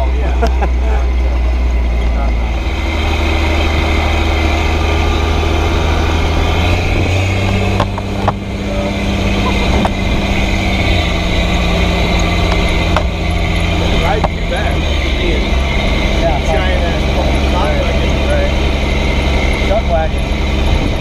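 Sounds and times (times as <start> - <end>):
loud truck diesel engine: 0.0 - 21.0
knocks and rattles: 6.4 - 8.6, 9.2 - 16.2.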